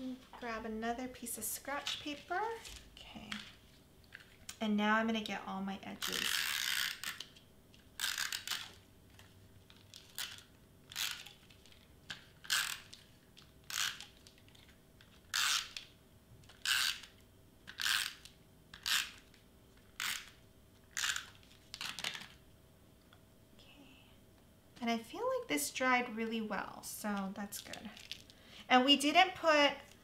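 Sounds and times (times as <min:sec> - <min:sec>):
tape runner scratching on paper: 0:08.0 - 0:08.8, 0:13.7 - 0:15.8.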